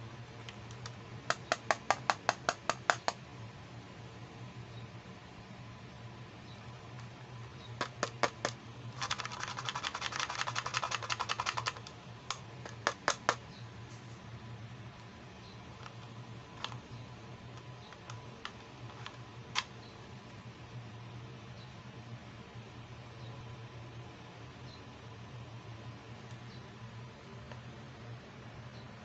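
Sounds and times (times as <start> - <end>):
low steady hum: 0.0 - 29.0
plastic case clicks and taps: 0.7 - 3.2, 12.3 - 13.4.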